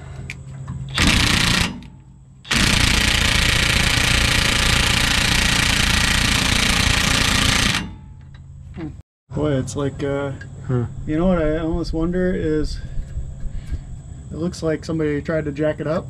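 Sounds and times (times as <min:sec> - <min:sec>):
impact wrench hammering: 0:00.9 - 0:08.5.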